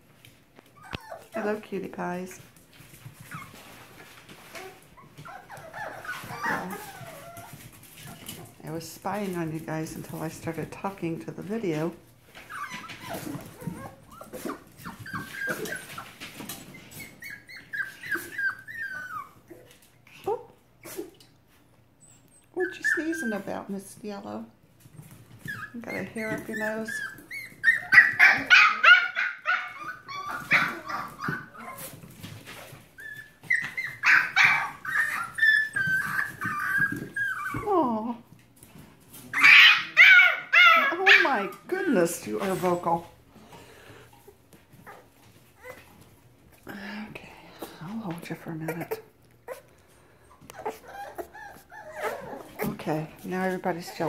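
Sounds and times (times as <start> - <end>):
puppies whimpering and yipping: 0.6 - 1.6, 3.0 - 8.6, 12.2 - 19.8, 21.9 - 23.7, 25.1 - 38.0, 39.2 - 43.1, 43.9 - 46.3, 48.6 - 54.0.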